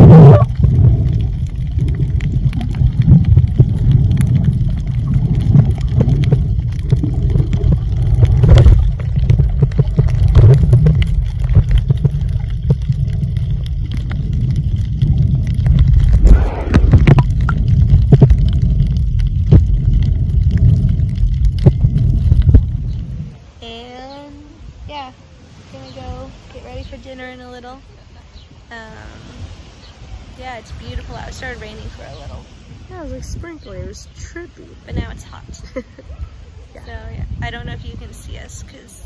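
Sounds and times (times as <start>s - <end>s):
underwater clicks: 0.0s - 23.3s
bubbling gurgles: 0.0s - 23.4s
muffled underwater water rumble: 0.0s - 39.0s.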